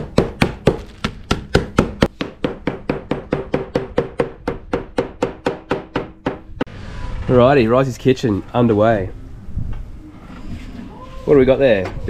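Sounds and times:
meat being pounded: 0:00.0 - 0:06.4.

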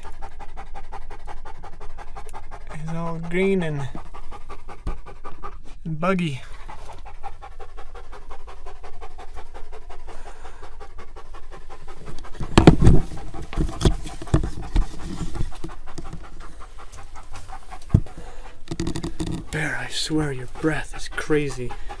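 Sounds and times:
dog panting: 0:00.0 - 0:22.0
thumps: 0:12.1 - 0:16.4, 0:17.8 - 0:19.6.

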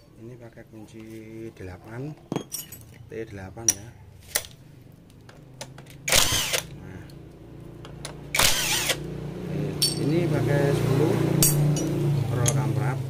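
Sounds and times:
power tool spinning bursts: 0:06.1 - 0:06.7, 0:08.3 - 0:09.1.

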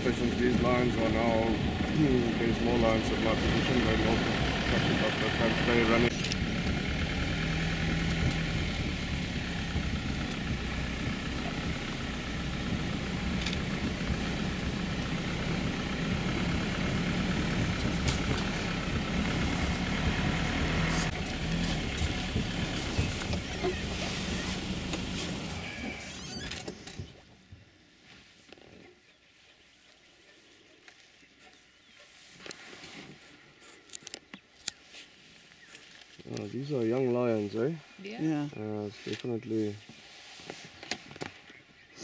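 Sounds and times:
vehicle engine running: 0:00.0 - 0:26.1.

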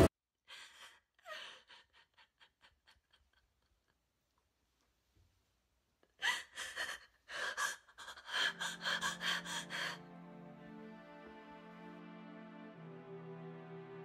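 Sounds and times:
woman sobbing: 0:00.5 - 0:04.0, 0:06.1 - 0:10.1
gasping breaths: 0:06.2 - 0:10.0
slow sad music: 0:06.4 - 0:14.0.

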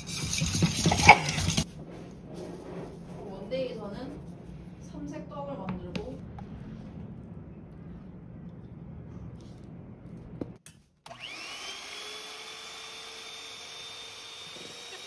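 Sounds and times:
electric hand mixer whining: 0:00.0 - 0:01.6, 0:11.1 - 0:15.0
low hum: 0:00.0 - 0:10.6.

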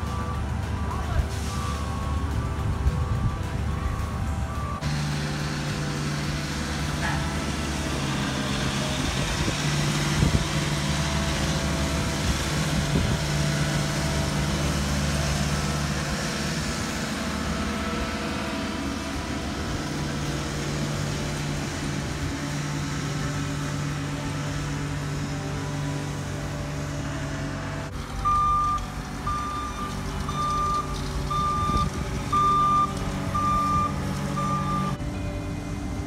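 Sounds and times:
road roller engine hum: 0:00.0 - 0:36.0.

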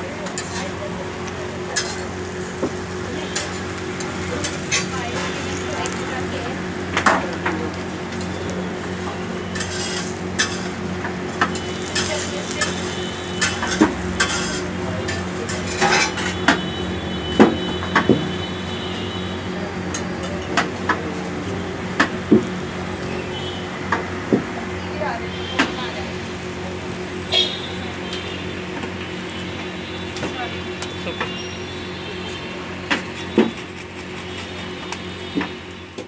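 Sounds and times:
steady sizzle: 0:00.0 - 0:36.0
metal spatula scraping griddle: 0:00.2 - 0:00.8, 0:01.8 - 0:02.4, 0:03.3 - 0:05.6, 0:09.4 - 0:10.8, 0:11.4 - 0:16.6, 0:33.0 - 0:34.9.

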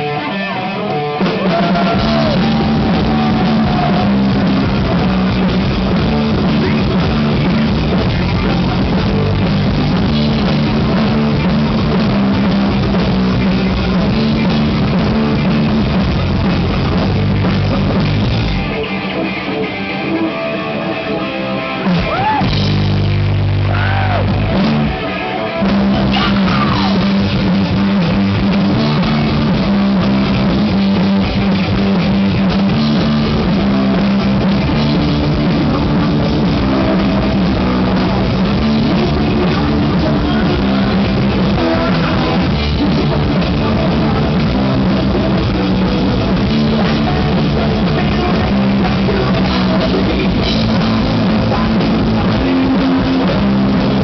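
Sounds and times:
person singing: 0:00.0 - 0:05.4, 0:23.7 - 0:28.0, 0:33.2 - 0:54.0
rock band playing live: 0:00.0 - 0:54.0.

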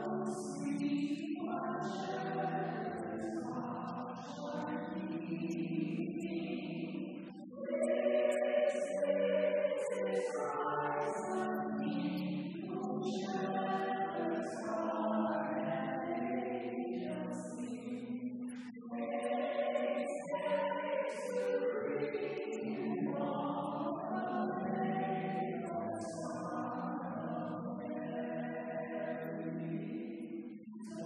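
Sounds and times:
group singing a hymn: 0:00.0 - 0:31.0.

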